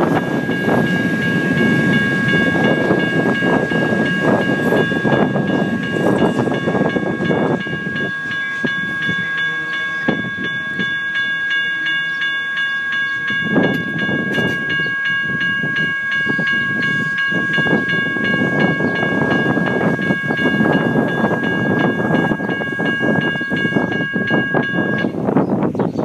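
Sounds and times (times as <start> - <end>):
electronic crossing bells ringing: 0.0 - 25.4.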